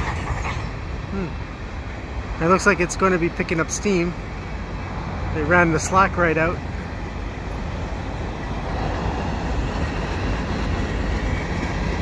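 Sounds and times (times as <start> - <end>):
freight train wheels rumbling: 0.0 - 12.0.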